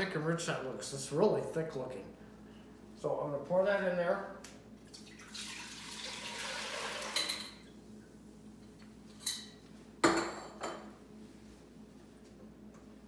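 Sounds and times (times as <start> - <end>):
broth pouring into metal pot: 5.0 - 7.2.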